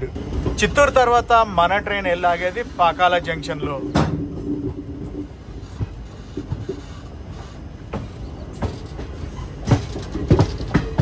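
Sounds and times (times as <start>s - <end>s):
train wheels rumbling on rail: 0.0s - 11.0s
irregular knocks: 7.9s - 11.0s.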